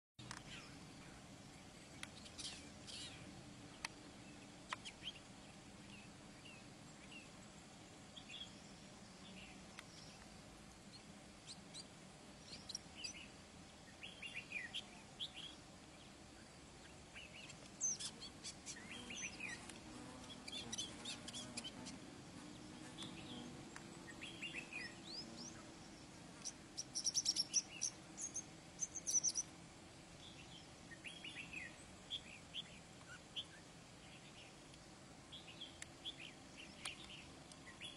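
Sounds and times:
faint low hum: 0.2 - 37.9.

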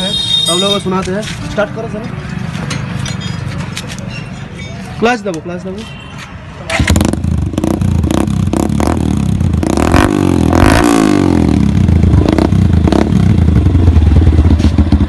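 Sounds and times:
motorcycle engine revving: 6.7 - 15.0.

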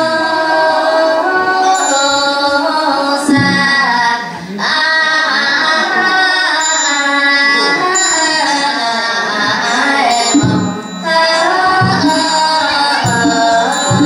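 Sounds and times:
group chanting in unison: 4.2 - 14.0.

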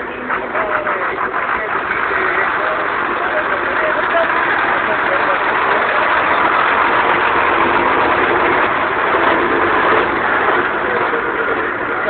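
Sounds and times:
road noise: 0.0 - 12.0
vehicle engine running: 0.0 - 12.0.

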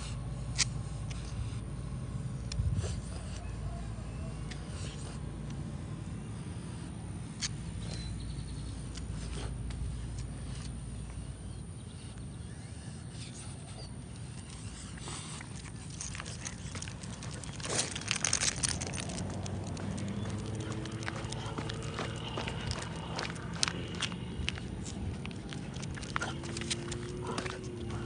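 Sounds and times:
low outdoor rumble: 0.0 - 28.0
footsteps on pavement: 15.6 - 28.0.

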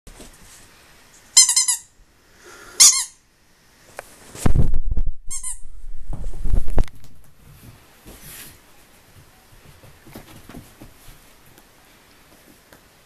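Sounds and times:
squeaky dog toy: 1.4 - 1.9, 2.8 - 3.2, 5.3 - 5.6.

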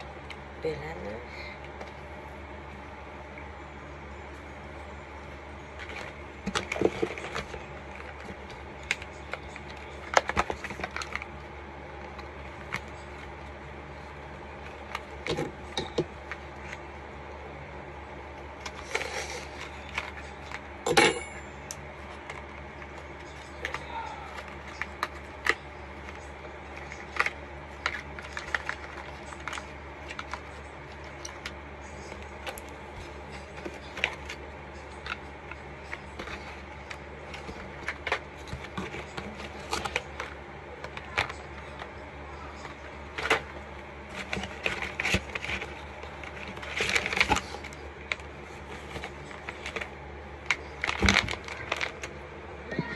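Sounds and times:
steady low hum: 0.0 - 52.9
cardboard boxes handled and opened: 42.6 - 49.9.

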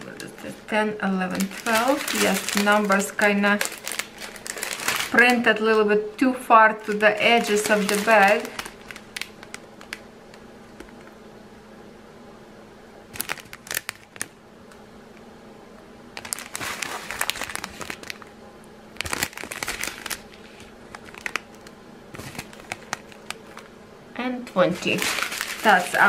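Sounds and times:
plastic bags crinkling: 0.0 - 6.0, 6.6 - 10.4, 13.1 - 14.4, 16.2 - 18.3, 18.9 - 23.7, 24.4 - 26.0.

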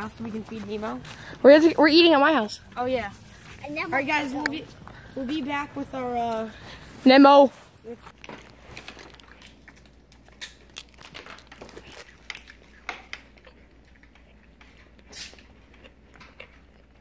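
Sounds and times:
crinkling and clicks from handling: 8.1 - 14.8.

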